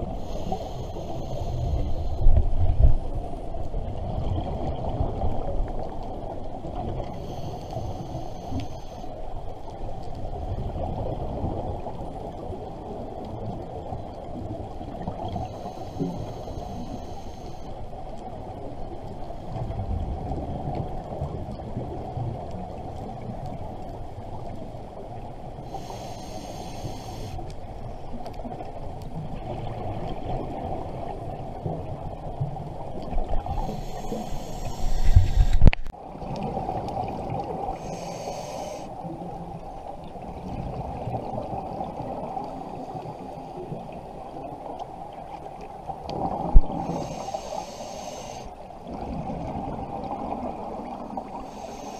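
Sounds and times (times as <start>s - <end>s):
exhaled bubbles hissing: 0.0s - 2.8s, 6.7s - 9.1s, 14.3s - 17.7s, 25.6s - 27.5s, 32.9s - 51.9s
muffled underwater rumble: 0.0s - 51.9s.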